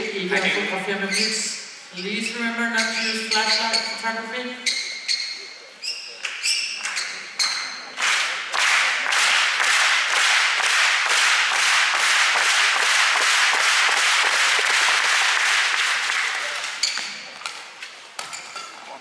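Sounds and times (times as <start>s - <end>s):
crowd clapping in rhythm: 6.2s - 16.9s.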